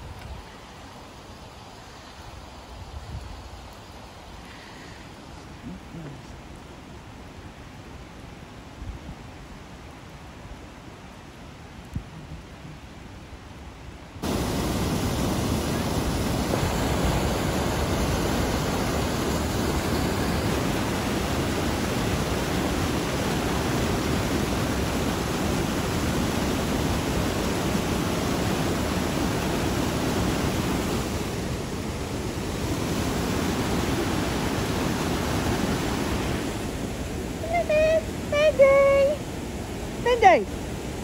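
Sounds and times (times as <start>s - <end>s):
river water rushing: 12.4s - 41.0s.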